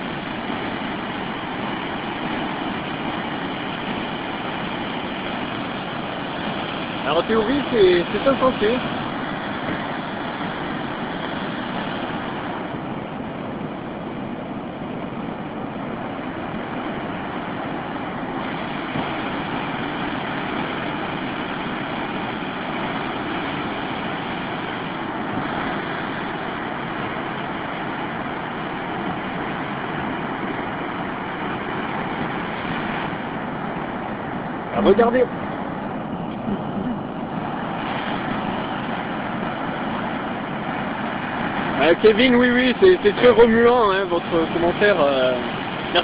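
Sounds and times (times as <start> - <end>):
floodwater rushing: 0.0 - 46.0.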